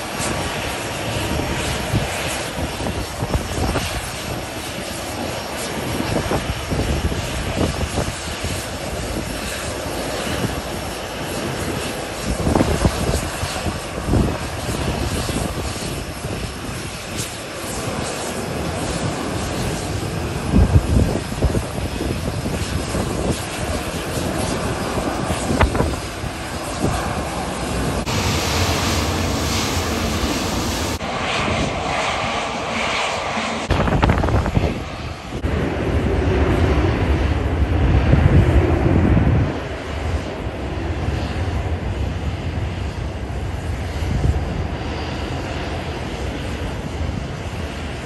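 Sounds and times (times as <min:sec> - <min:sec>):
jet engine on runway: 0:00.0 - 0:48.0
turboprop plane rolling: 0:00.0 - 0:48.0.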